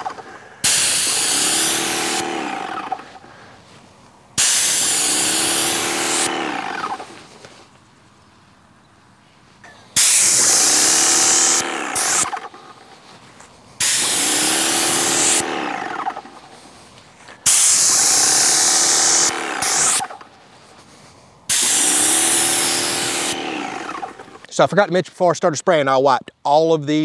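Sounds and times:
paint spray gun hissing: 0.0s - 3.3s, 4.4s - 7.4s, 9.9s - 13.0s, 13.8s - 16.6s, 17.4s - 20.3s, 21.5s - 24.4s.

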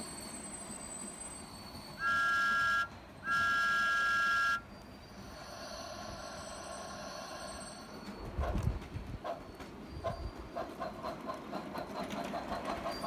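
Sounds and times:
garden train running noise: 0.0s - 13.0s
toy train whistle: 1.9s - 4.8s.

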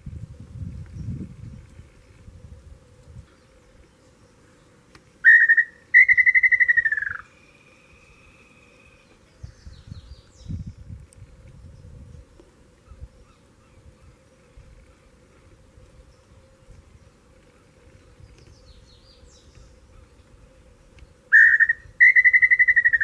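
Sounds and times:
bird whistling: 5.2s - 9.1s, 21.3s - 23.0s
high bird chirps: 5.2s - 10.6s, 21.3s - 23.0s.

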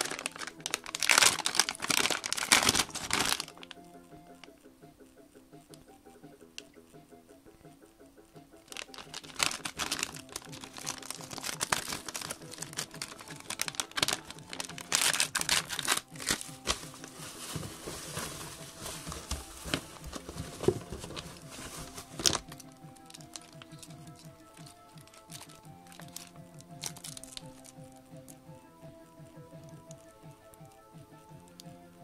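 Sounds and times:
plastic bag crinkling: 0.0s - 3.8s, 8.7s - 27.8s.

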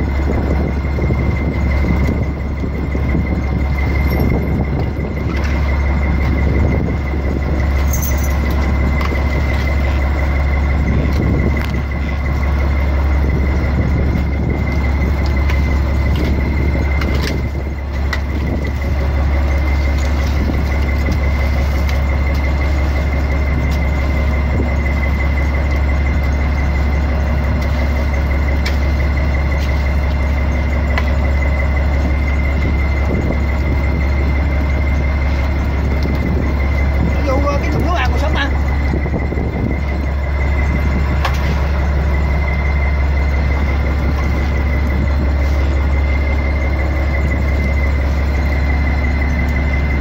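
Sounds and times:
boat engine droning: 0.0s - 50.0s.

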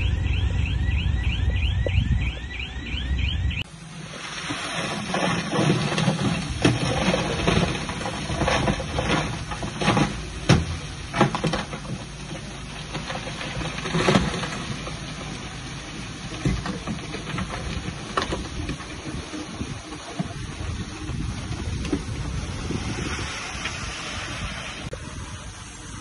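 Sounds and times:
bulldozer engine rumble: 0.0s - 26.0s
metal clanks and knocks: 4.9s - 15.5s.

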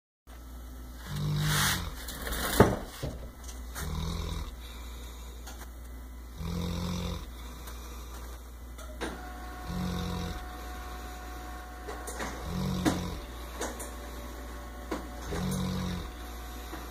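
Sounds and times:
dog snoring: 1.0s - 2.2s, 3.8s - 4.9s, 6.3s - 8.0s, 9.6s - 11.4s, 12.1s - 13.8s, 15.2s - 16.9s.

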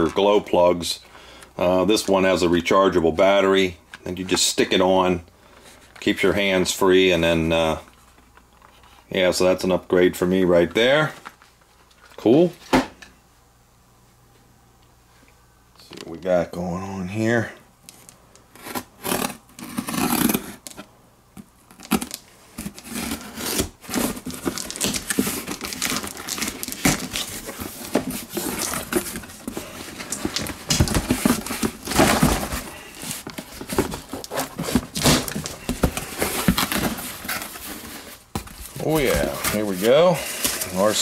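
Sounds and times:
cardboard box being opened: 21.7s - 41.0s
packing material crinkling: 21.7s - 41.0s.

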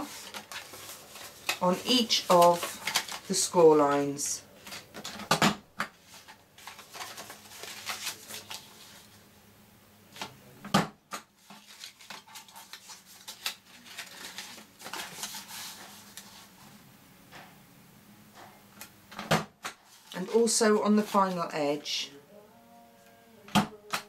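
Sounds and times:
paper rustling and sliding on plastic: 0.0s - 3.5s, 6.0s - 9.2s, 11.4s - 16.7s.

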